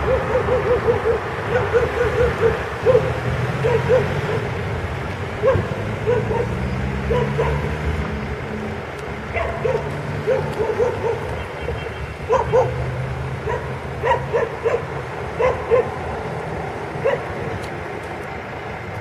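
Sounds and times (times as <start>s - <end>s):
dog barking: 0.0s - 4.5s, 5.4s - 7.7s, 9.3s - 12.8s, 13.4s - 16.0s, 17.0s - 17.3s
street traffic rumble: 0.0s - 19.0s.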